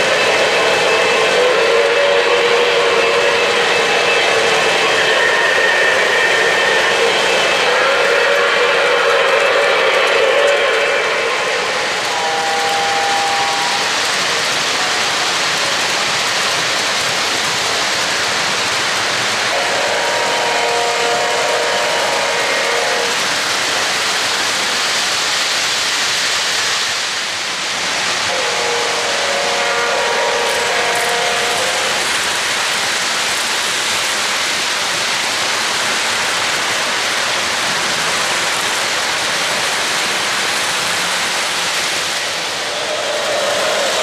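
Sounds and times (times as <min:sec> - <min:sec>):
model locomotive horn blasts: 0:00.0 - 0:14.0, 0:19.5 - 0:23.2, 0:28.3 - 0:32.1
model trains rolling on track: 0:00.0 - 0:44.0.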